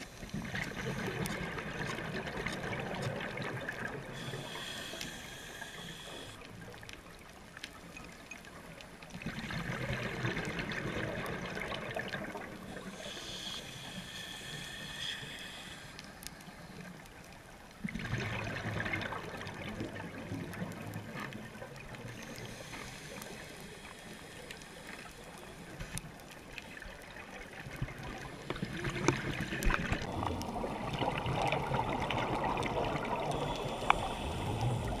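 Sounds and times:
exhaled air bubbling: 0.0 - 5.4, 9.1 - 13.5, 17.7 - 24.8, 26.7 - 35.0
hissing regulator inhale: 4.1 - 6.4, 12.6 - 16.9, 22.1 - 26.0, 33.1 - 35.0
faint clicks: 12.1 - 17.8, 19.0 - 30.5, 31.4 - 35.0.

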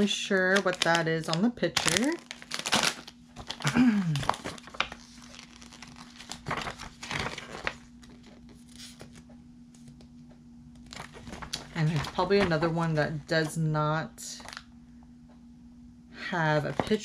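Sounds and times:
booklet pages flipping: 1.9 - 10.1, 10.8 - 12.8, 14.4 - 14.6.

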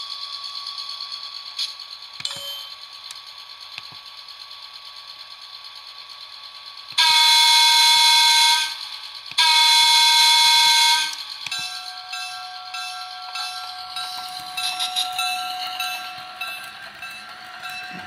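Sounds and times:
train running sound: 0.0 - 18.0
train horn through small speaker: 7.0 - 8.8, 9.4 - 11.2.

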